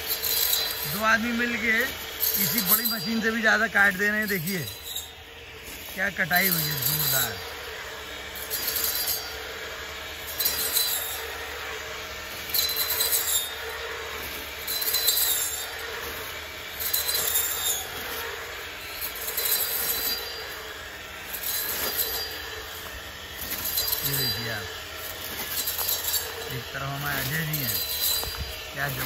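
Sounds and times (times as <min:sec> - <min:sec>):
brushcutter cutting dry stalks: 0:00.0 - 0:29.0
brushcutter motor whine: 0:00.0 - 0:29.0.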